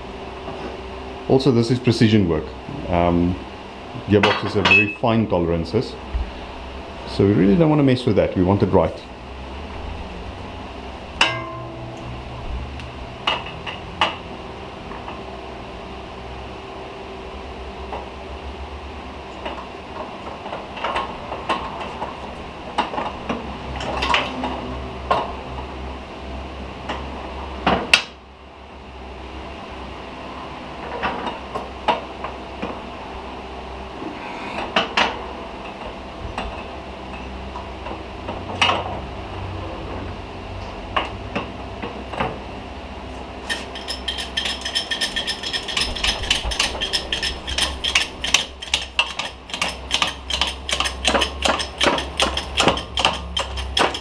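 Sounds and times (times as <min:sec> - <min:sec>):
low steady hum: 0:00.0 - 0:54.0
metal parts clinking: 0:43.4 - 0:54.0.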